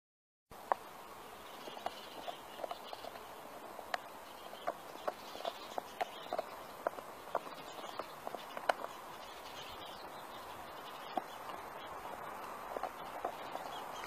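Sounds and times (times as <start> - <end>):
steady hiss: 0.5 - 14.0
dog gnawing a bone: 1.9 - 3.0, 4.6 - 9.0, 12.4 - 14.0.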